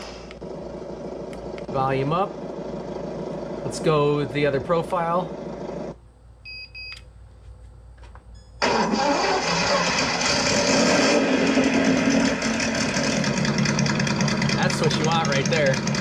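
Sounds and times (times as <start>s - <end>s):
simulated engine idling from speaker: 0.3s - 6.0s, 12.5s - 16.0s.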